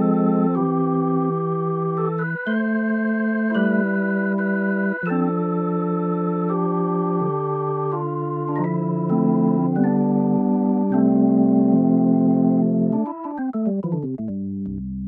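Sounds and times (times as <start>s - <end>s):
organ playing sustained chords: 0.0s - 13.5s.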